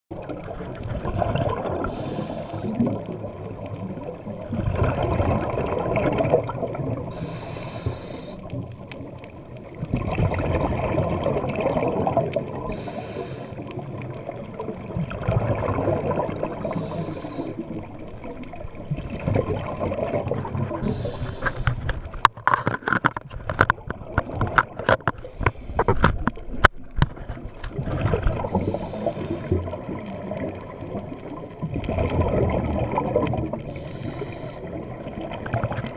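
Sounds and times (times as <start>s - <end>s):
diver exhaling bubbles: 0.3s - 3.8s, 4.4s - 8.1s, 9.8s - 21.9s, 27.7s - 35.9s
regulator inhalation hiss: 1.9s - 2.8s, 7.1s - 8.5s, 12.7s - 13.6s, 16.7s - 17.6s, 20.8s - 21.7s, 28.6s - 29.6s, 33.7s - 34.7s
sharp clicks and crackles: 21.0s - 28.2s.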